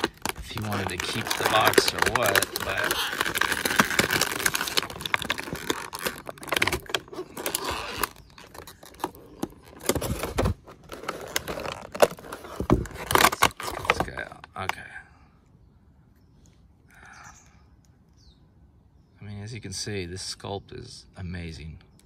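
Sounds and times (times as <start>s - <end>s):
plastic packaging crinkling: 0.0s - 14.3s.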